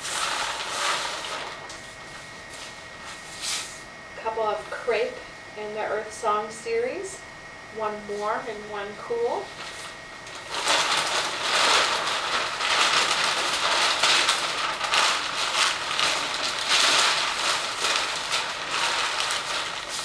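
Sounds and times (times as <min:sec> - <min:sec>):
paper crinkling and rustling: 0:00.0 - 0:03.2, 0:09.5 - 0:20.0.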